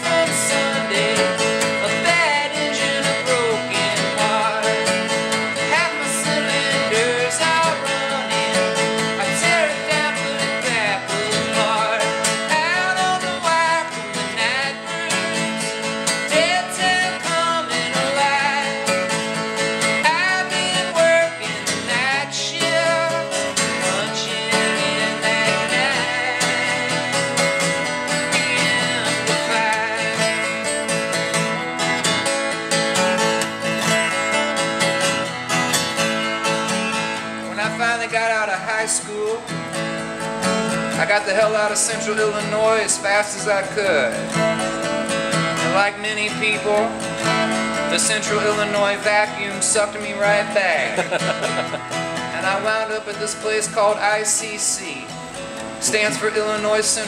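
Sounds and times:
man singing: 0.0s - 31.5s, 37.4s - 39.6s, 40.8s - 55.2s, 55.8s - 57.0s
acoustic guitar: 0.0s - 57.0s.

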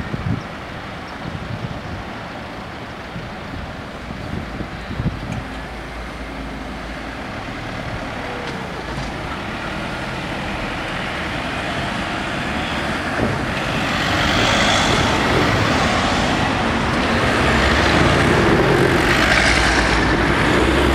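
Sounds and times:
cars driving past: 5.0s - 20.9s.

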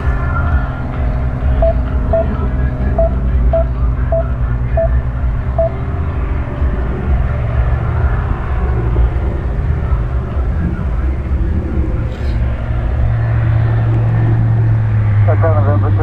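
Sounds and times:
propeller aircraft engine drone: 0.0s - 16.0s
short high beeps: 1.6s - 2.4s, 3.0s - 5.0s, 5.6s - 5.8s.

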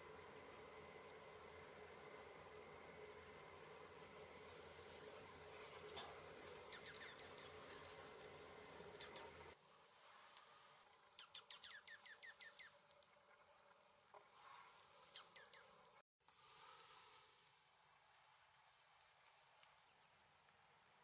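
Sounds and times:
small songbirds chirping: 1.6s - 4.3s, 4.9s - 9.6s, 11.0s - 13.0s, 15.0s - 15.9s.

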